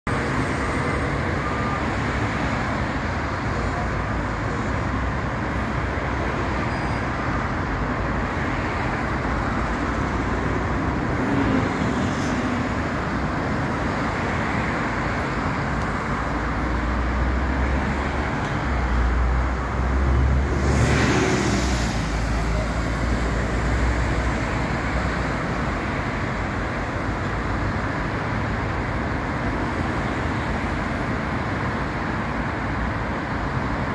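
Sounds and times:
road traffic: 0.0s - 33.9s
loud vehicle passing: 17.5s - 24.8s.

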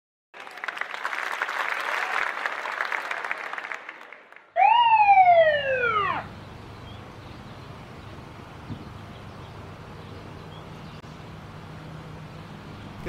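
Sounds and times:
police siren whoop: 4.6s - 6.3s.

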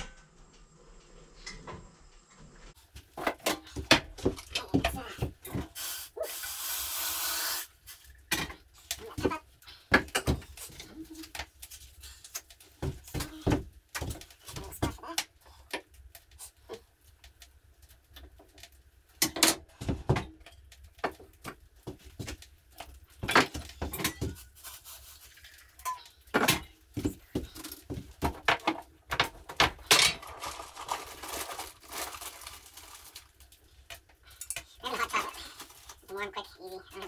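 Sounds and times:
packet rustling: 29.3s - 37.0s.

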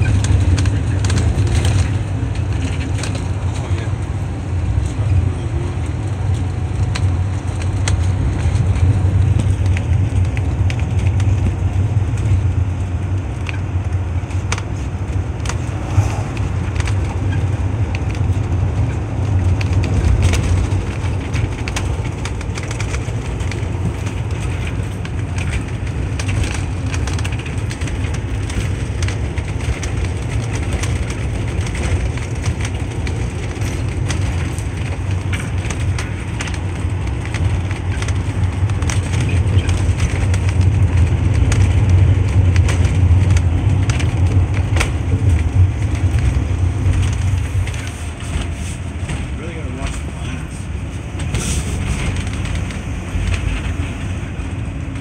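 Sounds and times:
car road noise rumble: 0.0s - 55.0s
knocks and rattles: 13.4s - 55.0s.

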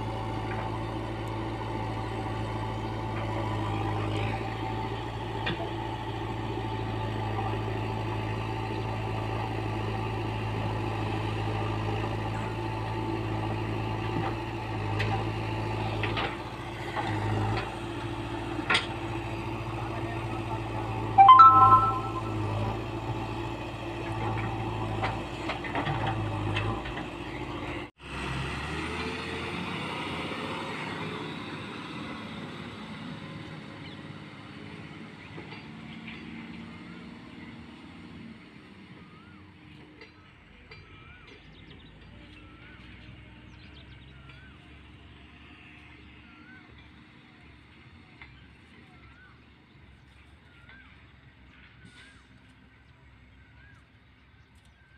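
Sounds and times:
diesel engine running: 0.0s - 21.2s, 22.2s - 54.2s
multi-pitch beep: 21.2s - 22.6s.

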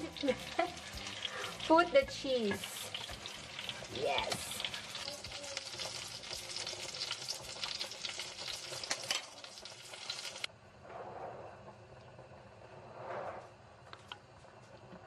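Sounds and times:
sauce sizzling in a frying pan: 0.0s - 10.5s.

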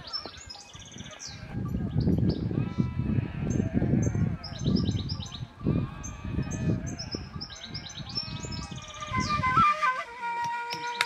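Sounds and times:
small birds chirping: 0.0s - 9.5s
sheep and goats bleating: 1.0s - 9.3s.

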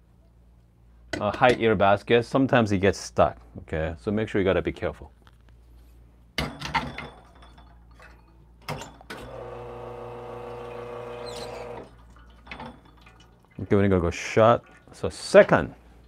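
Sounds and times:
espresso machine pump humming: 9.2s - 11.9s.

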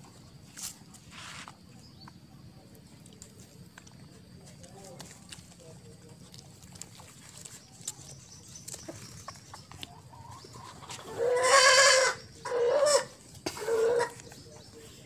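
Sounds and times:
animal calling: 6.1s - 15.0s.

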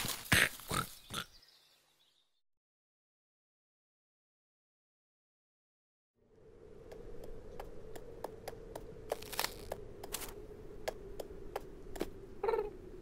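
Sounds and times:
faint steady hum: 6.2s - 13.0s.

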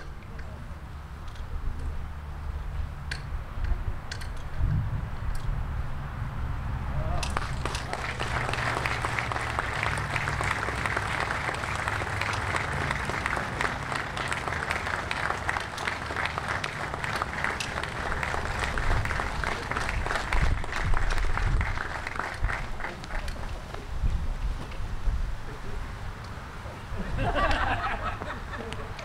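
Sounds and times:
crowd applauding: 7.2s - 23.4s.

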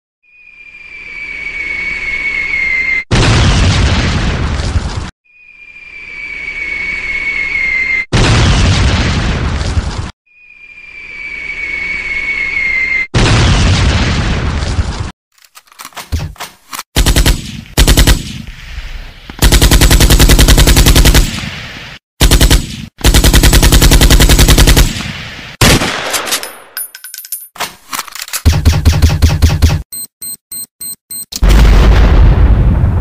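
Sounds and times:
falling whistle: 0.2s - 3.1s, 5.2s - 8.1s, 10.3s - 13.1s
loud blast: 8.1s - 9.6s, 31.4s - 33.0s
rapid automatic gunfire: 17.0s - 18.4s, 19.4s - 21.4s, 22.2s - 25.0s, 28.4s - 29.8s.

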